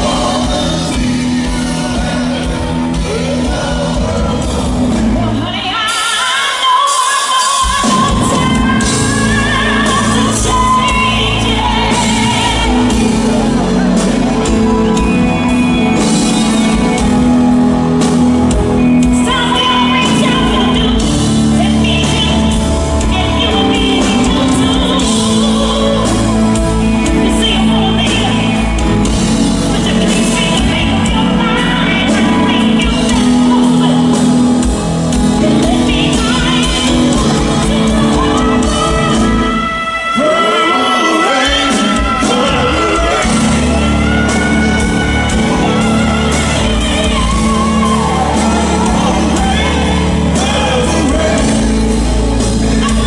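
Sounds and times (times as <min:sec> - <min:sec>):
live funk band playing: 0:00.0 - 0:53.0
person singing: 0:00.0 - 0:53.0.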